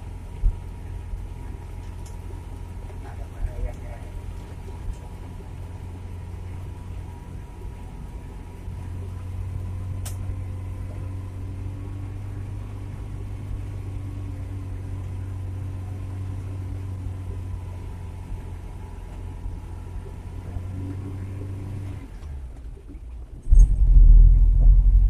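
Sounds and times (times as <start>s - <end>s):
car engine droning: 0.0s - 25.0s
sharp click: 10.0s - 10.2s.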